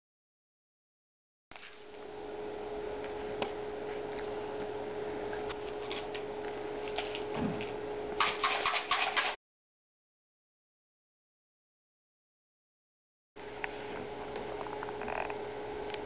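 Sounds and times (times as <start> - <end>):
steady room hum: 1.5 - 9.4, 13.4 - 16.0.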